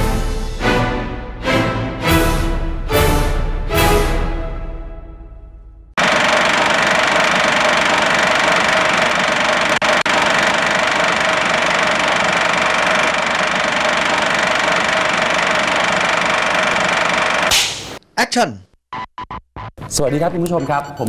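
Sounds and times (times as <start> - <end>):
film projector clatter and whir: 6.0 - 17.6.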